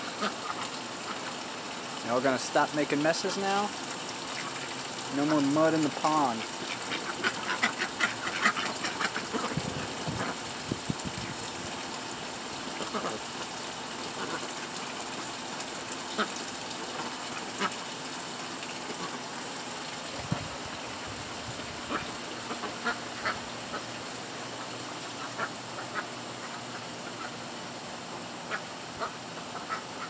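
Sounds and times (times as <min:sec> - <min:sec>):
ducks quacking: 0:00.0 - 0:01.4, 0:06.0 - 0:10.4, 0:21.8 - 0:27.4, 0:28.1 - 0:30.0
water splashing: 0:00.0 - 0:27.4
water running from hose: 0:00.0 - 0:30.0.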